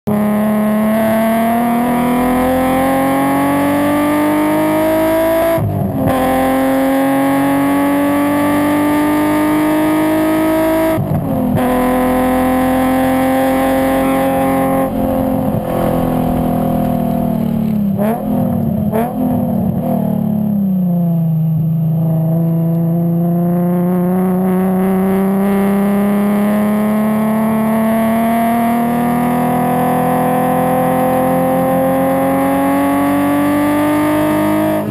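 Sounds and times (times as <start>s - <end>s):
car engine revving: 0.0s - 34.9s
engine throttle blips: 0.4s - 22.9s.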